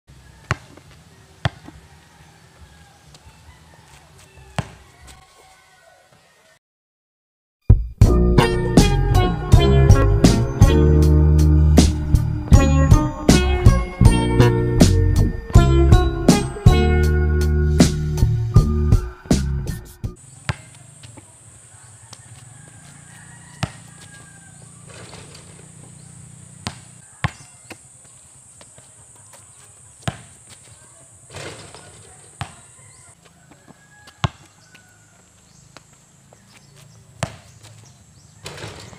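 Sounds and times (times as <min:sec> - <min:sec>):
basketball bouncing on concrete: 0:00.4 - 0:01.8, 0:04.5 - 0:04.8, 0:20.4 - 0:21.2, 0:23.5 - 0:24.4, 0:25.0 - 0:27.9, 0:30.0 - 0:30.7, 0:31.6 - 0:32.8, 0:33.7 - 0:34.8, 0:37.2 - 0:37.8
music: 0:07.7 - 0:20.2.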